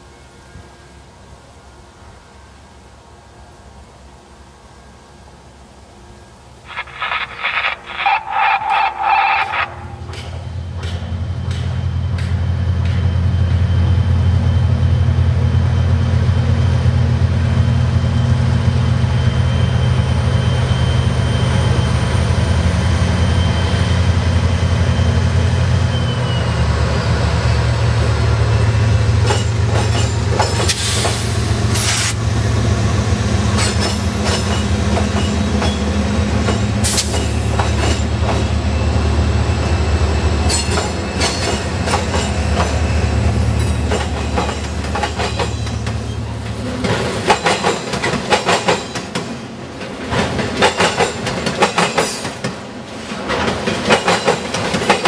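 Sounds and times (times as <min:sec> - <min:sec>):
locomotive engine drone: 0:04.3 - 0:47.4
wheel squeal: 0:07.6 - 0:10.5
wheels clattering over rail joints: 0:43.6 - 0:55.0.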